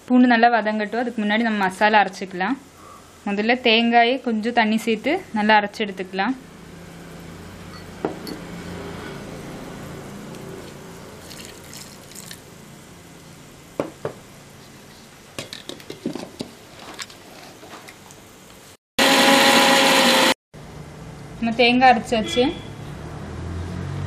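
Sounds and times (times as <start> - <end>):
glass and jar clinking: 7.7 - 8.5
water dripping: 11.2 - 12.4
water pouring into jar: 11.2 - 12.4.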